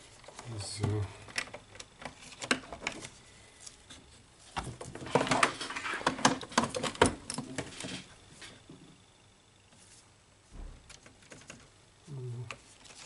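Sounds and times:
wires and plastic rustling: 0.0s - 8.8s, 9.7s - 13.0s.

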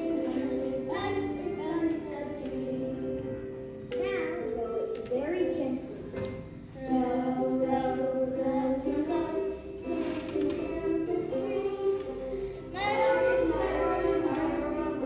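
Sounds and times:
young children singing: 0.0s - 15.0s.

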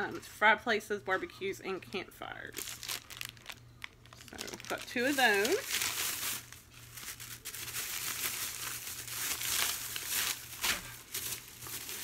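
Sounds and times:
plastic bags crinkling: 2.4s - 12.0s.

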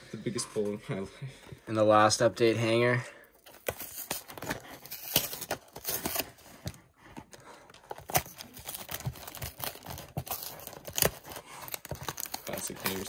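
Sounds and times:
cardboard crackling and tearing: 3.5s - 6.5s, 7.8s - 13.0s.

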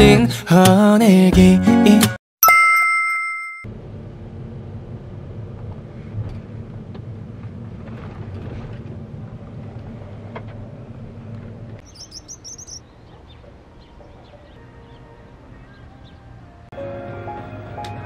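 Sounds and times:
outdoor ambience: 3.6s - 18.0s
car engine and tyres rumbling: 3.7s - 16.7s
high bird chirps: 11.8s - 15.0s.

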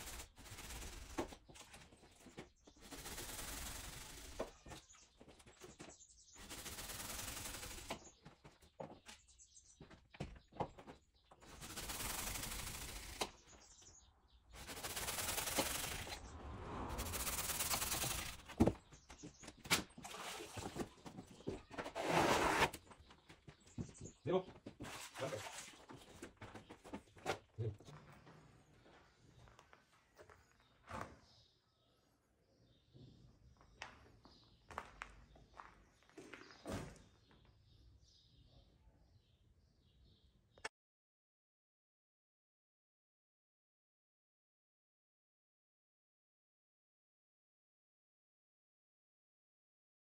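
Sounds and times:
plaster scraping strokes: 0.0s - 5.1s, 14.6s - 16.2s, 19.9s - 22.9s.

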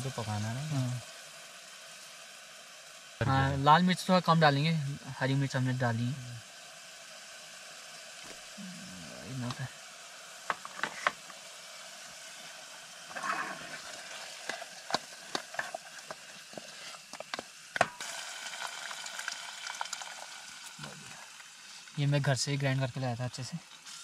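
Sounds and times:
masala sizzling in a pan: 0.0s - 24.0s
utensil scraping a pan: 13.1s - 17.4s.

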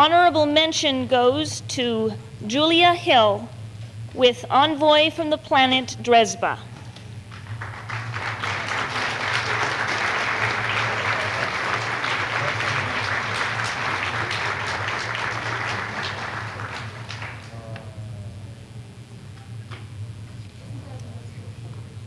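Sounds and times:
audience applauding: 7.3s - 17.8s.

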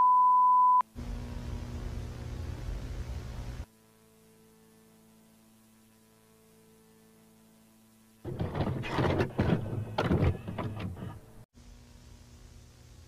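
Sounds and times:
faint electrical hum: 0.8s - 8.2s, 11.2s - 13.0s
tape mechanism clunking and rattling: 8.3s - 11.4s.

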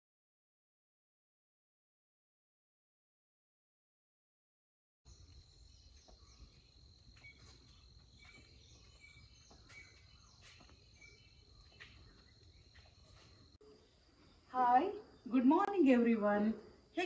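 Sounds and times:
high insect drone: 5.1s - 17.0s.

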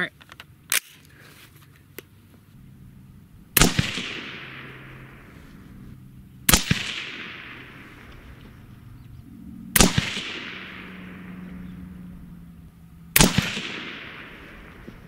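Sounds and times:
gunshot echo: 3.6s - 5.3s, 6.5s - 8.5s, 9.8s - 11.7s, 13.2s - 15.0s
suppressed rifle shots: 3.6s - 5.6s, 6.4s - 9.1s, 9.7s - 12.4s, 13.1s - 15.0s.

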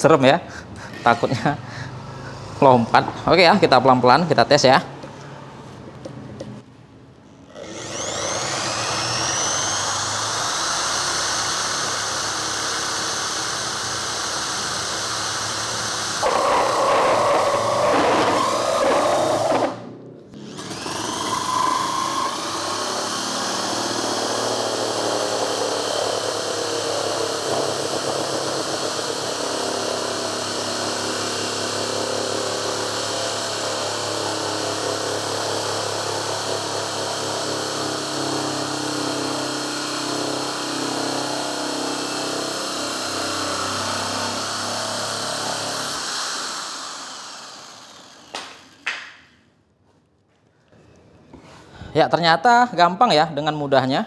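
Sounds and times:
electric drill with holesaw cutting wood: 7.5s - 19.8s, 20.4s - 48.9s.

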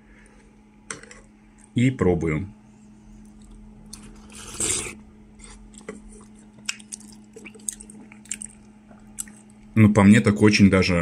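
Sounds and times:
chewing with wet mouth clicks: 3.2s - 4.1s, 5.4s - 9.8s
person slurping soup: 4.0s - 5.6s.

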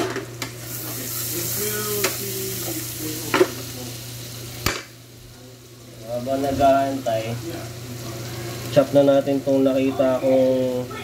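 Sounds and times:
garlic sizzling in butter: 0.0s - 11.0s.

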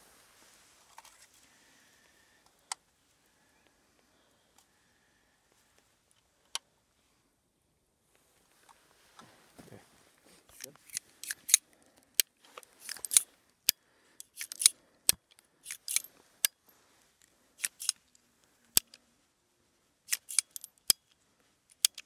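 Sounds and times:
revolver action metallic clicks: 14.2s - 16.6s, 20.1s - 21.0s.

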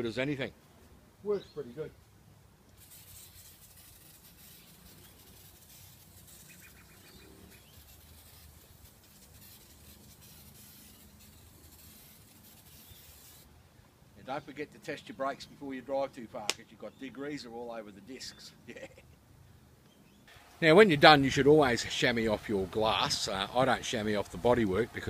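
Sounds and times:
aerosol can spraying: 2.8s - 13.5s.

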